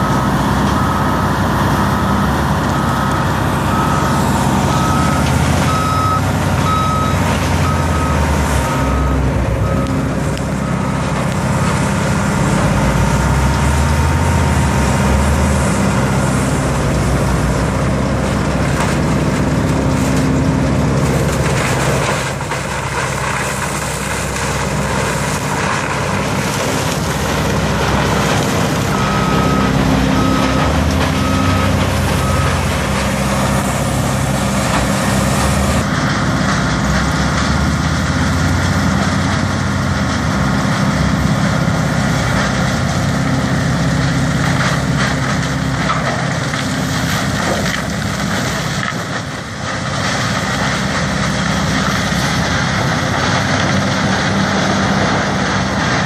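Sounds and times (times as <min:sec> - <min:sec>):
backup alarm beeping: 0:00.0 - 0:11.2, 0:28.8 - 0:34.4
diesel grinder engine and grinding: 0:00.0 - 0:56.0.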